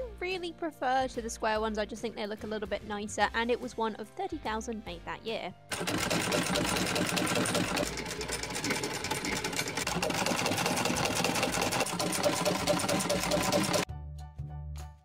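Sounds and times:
sewing machine clattering: 5.7 - 13.9.

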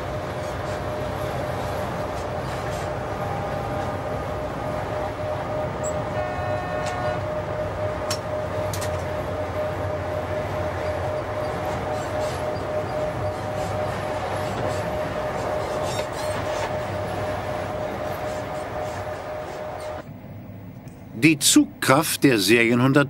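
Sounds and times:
locomotive cab rumble and whine: 0.0 - 23.0
short horn-like tone: 5.8 - 7.4.

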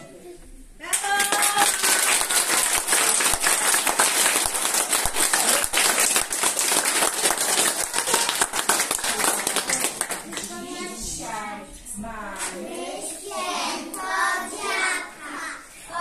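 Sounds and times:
audience applauding: 0.9 - 10.5.

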